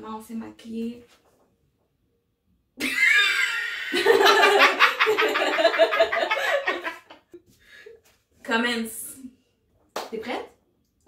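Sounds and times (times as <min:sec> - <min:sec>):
woman laughing loudly: 0:02.8 - 0:07.2.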